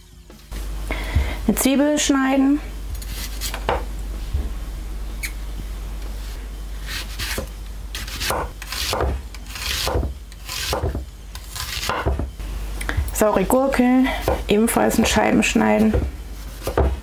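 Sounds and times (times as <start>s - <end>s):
knife slicing onion on board: 6.8s - 12.3s, 14.2s - 17.0s.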